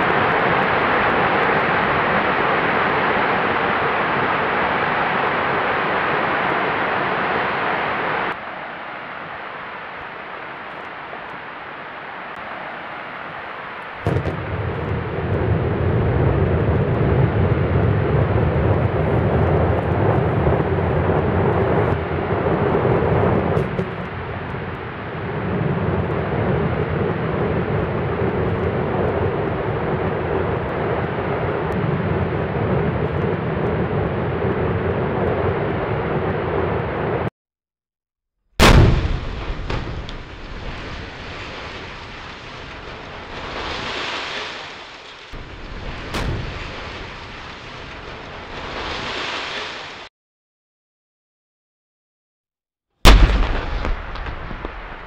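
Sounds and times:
explosive charges cracking: 14.0 - 24.8, 38.6 - 44.0, 45.4 - 49.2, 53.0 - 55.0
demolition blast: 14.0 - 35.5, 38.6 - 43.9, 45.4 - 49.0, 53.0 - 55.0
towers collapsing rumble: 14.0 - 36.6, 38.6 - 44.6, 45.4 - 49.8, 53.0 - 55.0.

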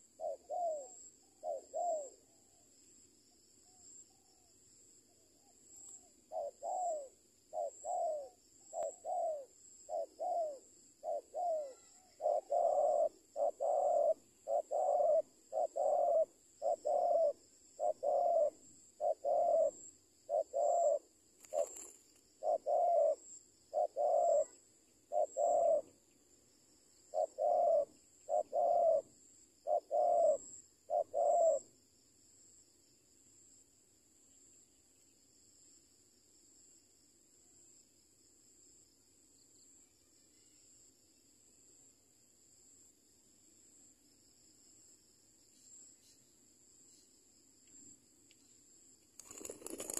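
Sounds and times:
dove cooing: 0.0 - 2.6, 5.4 - 26.0, 27.1 - 31.7, 49.2 - 49.9
insects buzzing: 5.8 - 36.4, 37.0 - 49.9.

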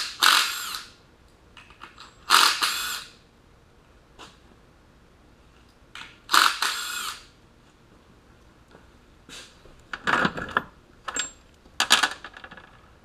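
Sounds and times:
metal tools clattering: 11.1 - 12.8.

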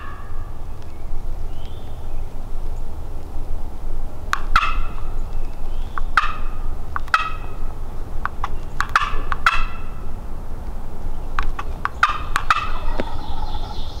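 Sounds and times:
turkey yelping and clucking: 0.0 - 0.6, 4.3 - 5.2, 5.9 - 10.2, 11.4 - 14.0
low steady rumble: 0.0 - 14.0.

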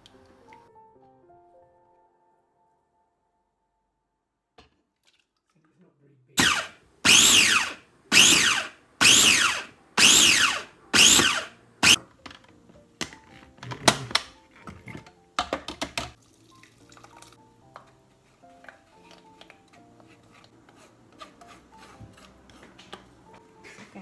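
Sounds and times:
background music: 0.0 - 4.1, 8.3 - 24.0
food processor pulsing whir: 6.4 - 12.0
plastic knocks and clicks: 12.0 - 16.2.

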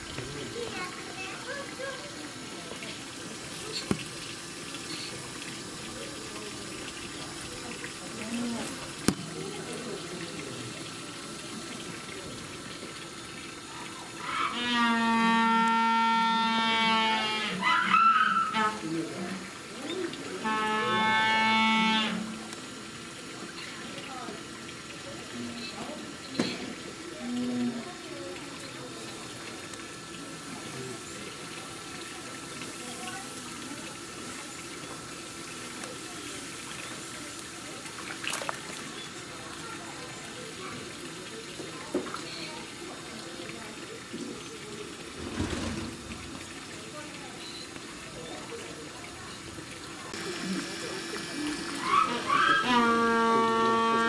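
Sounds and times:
running water: 0.0 - 54.0
penguin braying call: 14.2 - 18.8, 51.8 - 54.0.

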